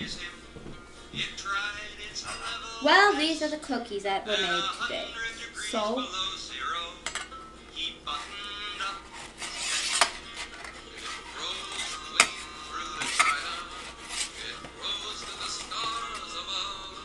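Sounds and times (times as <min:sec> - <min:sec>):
spatula scraping metal baking sheet: 0:08.1 - 0:16.3.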